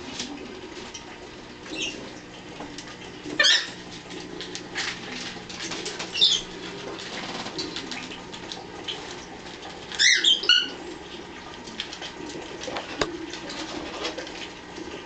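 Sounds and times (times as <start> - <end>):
parrots chirping and calling: 1.7 - 2.0, 3.3 - 3.8, 6.1 - 6.6, 9.9 - 10.8.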